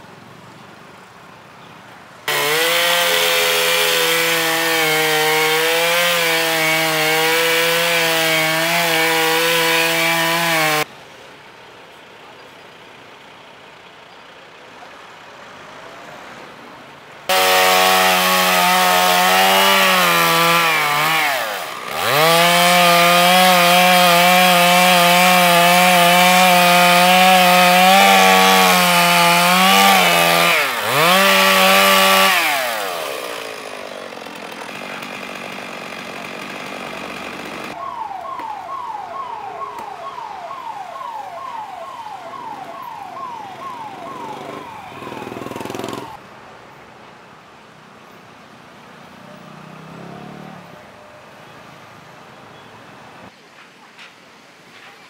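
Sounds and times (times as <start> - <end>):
chainsaw cutting tree trunk: 2.3 - 10.9, 17.3 - 37.8, 44.3 - 46.2.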